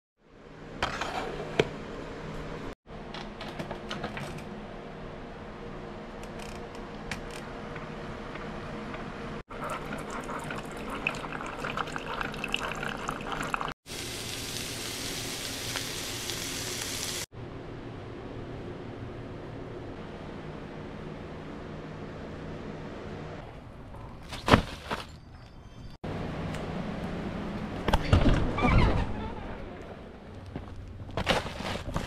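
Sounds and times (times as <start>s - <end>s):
liquid running into mug: 9.6s - 13.8s
vegetables sizzling in frying pan: 13.9s - 17.3s.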